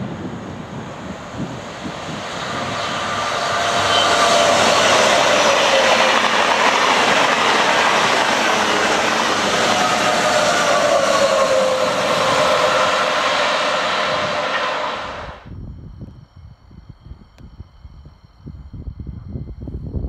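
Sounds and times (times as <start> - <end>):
high-speed train passing: 0.0 - 15.5.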